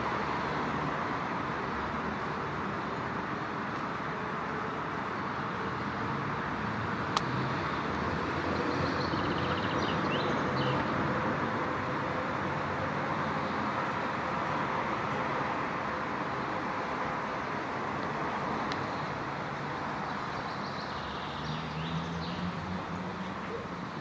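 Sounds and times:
distant road traffic hum: 0:00.0 - 0:24.0
sharp click: 0:07.1 - 0:07.4.

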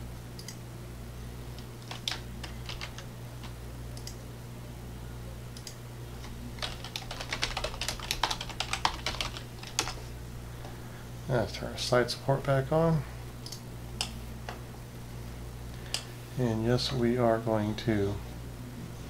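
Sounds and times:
steady low hum: 0:00.0 - 0:19.0
typing on computer keyboard: 0:01.8 - 0:04.2, 0:06.6 - 0:10.0.

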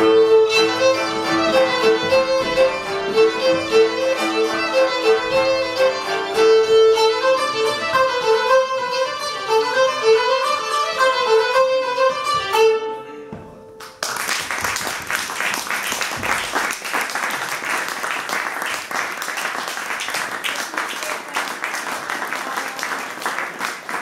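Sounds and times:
violin and zither playing: 0:00.0 - 0:13.6
applause: 0:13.8 - 0:24.0.

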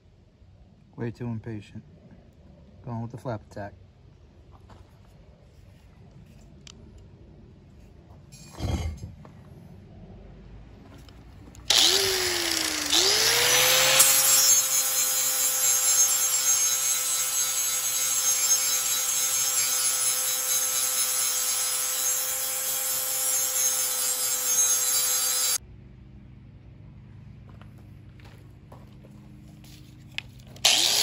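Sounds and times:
angle grinder sanding steel: 0:11.7 - 0:25.6, 0:30.6 - 0:31.0.

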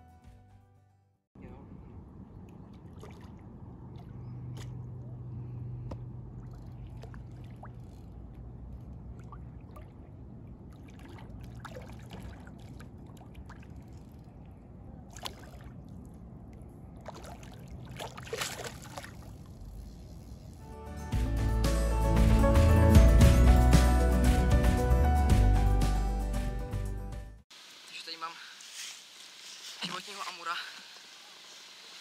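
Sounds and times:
water sloshing and splashing: 0:02.2 - 0:19.8.

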